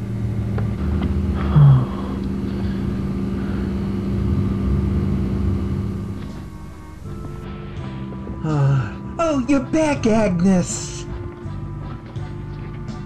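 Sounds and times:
low rumbling: 0:00.0 - 0:09.2
steady low hum: 0:00.0 - 0:13.0.

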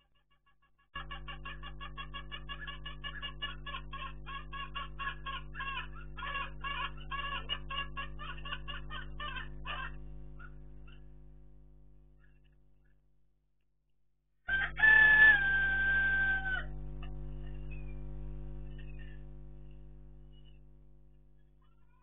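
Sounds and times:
poultry cackling: 0:00.0 - 0:11.1, 0:14.5 - 0:17.9, 0:18.6 - 0:19.8, 0:20.4 - 0:20.6, 0:21.6 - 0:22.0
low electrical hum: 0:01.0 - 0:13.2, 0:14.5 - 0:22.0.

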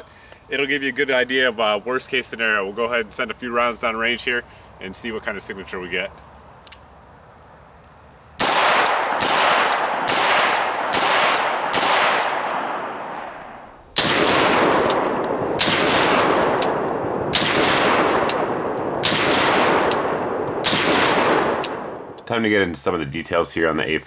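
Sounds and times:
rifle shots echoing: 0:08.4 - 0:22.2
slowed down gunshots: 0:08.4 - 0:22.2.

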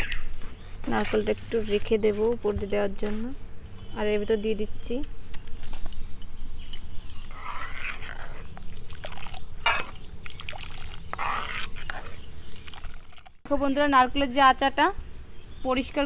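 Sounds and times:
ladle scraping and sloshing in pot: 0:07.1 - 0:13.4.

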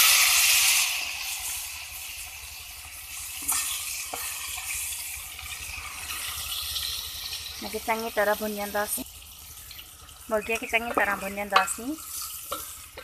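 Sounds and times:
chicken sizzling in hot oil: 0:00.0 - 0:13.0
wooden spoon knocking on pot: 0:10.8 - 0:11.8.

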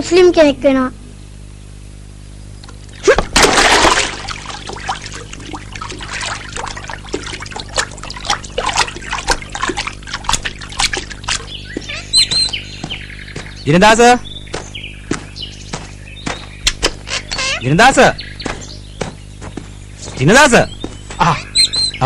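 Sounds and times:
water dripping and trickling: 0:02.6 - 0:13.5
water splashing: 0:02.8 - 0:13.6.

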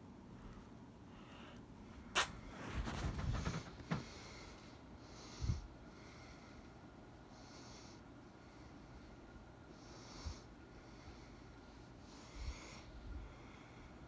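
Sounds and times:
room hiss: 0:00.0 - 0:14.0
breathing through the nose: 0:03.9 - 0:06.7.

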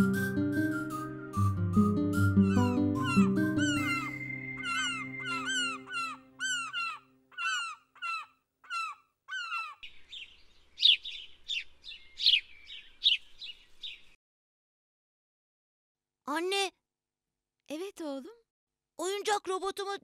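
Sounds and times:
music: 0:00.0 - 0:06.5
songbird chirping: 0:00.0 - 0:14.2
seagulls calling: 0:02.0 - 0:14.0.

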